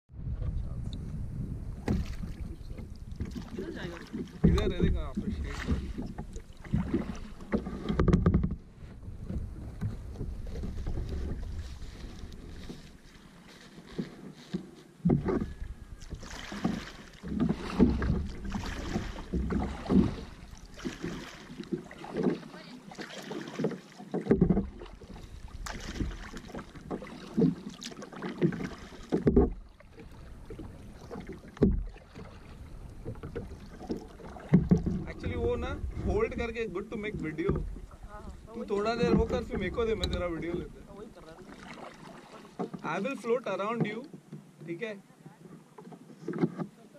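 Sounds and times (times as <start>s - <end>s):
wind rumble on microphone: 0.1s - 13.1s, 15.0s - 16.7s, 29.3s - 41.0s
kayak paddle splashing in water: 1.7s - 44.9s
water trickling: 15.4s - 44.1s.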